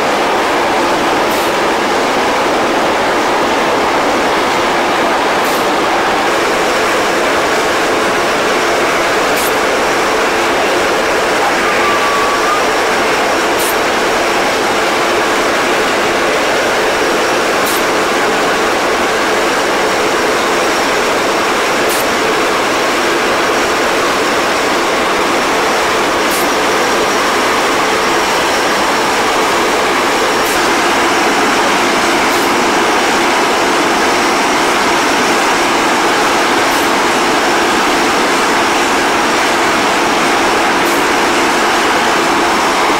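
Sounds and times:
aircraft engine roar: 0:00.0 - 0:42.9
constant hum: 0:00.0 - 0:42.9
faint high whine: 0:00.0 - 0:42.9.

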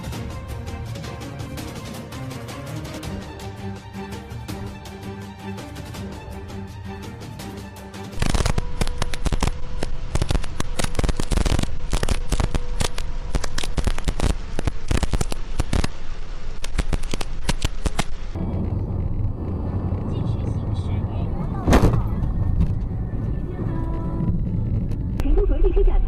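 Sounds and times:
music: 0:00.0 - 0:11.2, 0:21.7 - 0:26.0.

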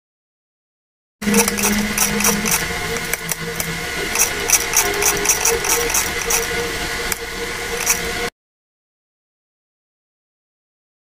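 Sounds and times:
mechanical calculator clicking: 0:01.3 - 0:03.4, 0:04.1 - 0:06.5, 0:07.8 - 0:08.1.

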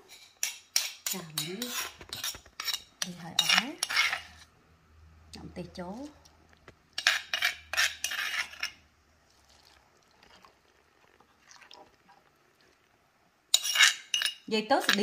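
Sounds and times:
spoon stirring in glass bowl: 0:00.0 - 0:04.5, 0:07.0 - 0:08.8, 0:13.5 - 0:15.0
metal spoon striking stone mortar: 0:00.4 - 0:04.0.

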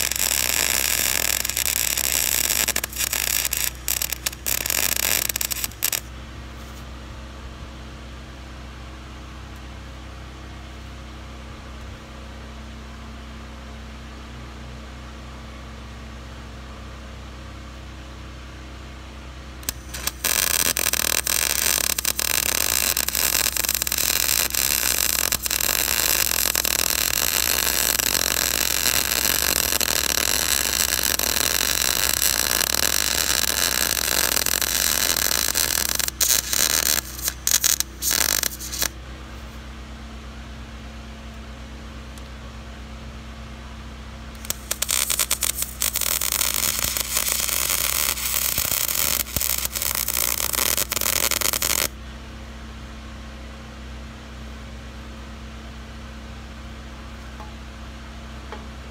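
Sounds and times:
welding arc sizzling hiss: 0:00.0 - 0:06.8, 0:19.6 - 0:39.6, 0:44.4 - 0:52.0
low steady hum: 0:00.0 - 0:58.9.

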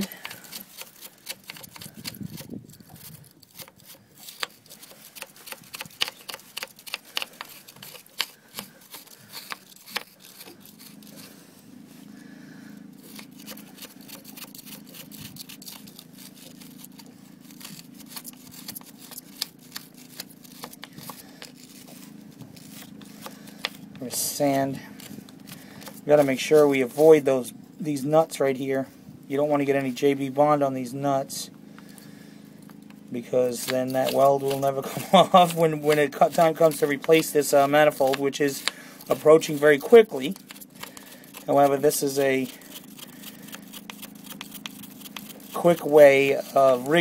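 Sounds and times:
hand tool scraping metal: 0:00.0 - 0:11.4, 0:13.0 - 0:27.3, 0:33.2 - 0:47.0
steady low hum: 0:00.0 - 0:47.0.

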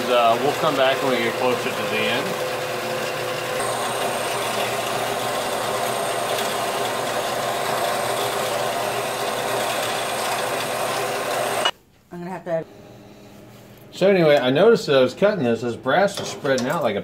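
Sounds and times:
bandsaw cutting metal: 0:00.0 - 0:11.7
thin high whine: 0:03.6 - 0:07.0.

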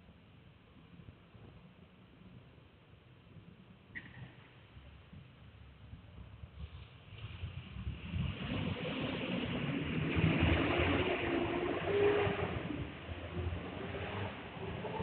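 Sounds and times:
vehicle rumble: 0:04.8 - 0:15.0.

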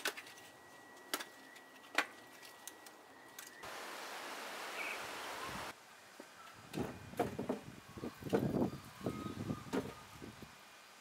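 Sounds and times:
rushing outdoor noise: 0:03.6 - 0:11.0.

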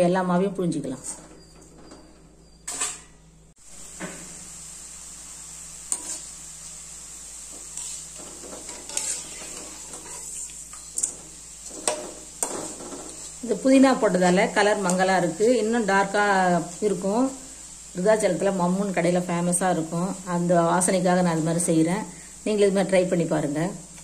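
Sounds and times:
hot oil sizzling: 0:00.7 - 0:24.0
short scrape: 0:07.8 - 0:10.4.

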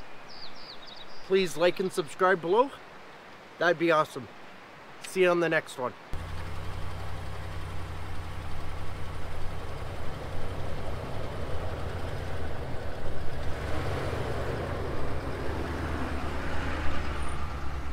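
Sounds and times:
truck engine running: 0:06.2 - 0:17.9.

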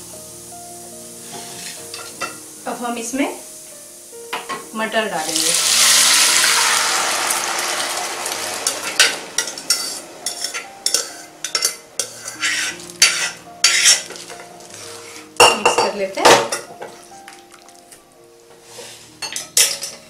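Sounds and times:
hot oil sizzling: 0:00.0 - 0:20.0
spatula stirring in pot: 0:08.9 - 0:15.3.

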